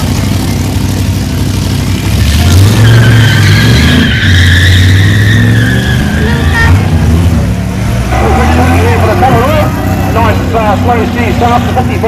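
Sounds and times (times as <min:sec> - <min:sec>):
car engine revving: 0:00.0 - 0:12.0
tyre squeal: 0:02.5 - 0:07.0.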